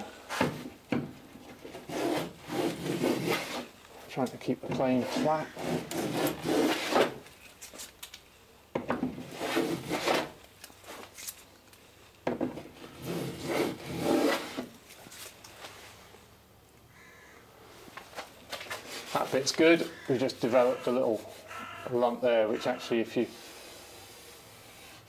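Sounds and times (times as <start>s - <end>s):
hand plane scraping wood: 1.6s - 3.7s, 4.7s - 7.2s, 9.2s - 10.4s, 12.8s - 14.7s.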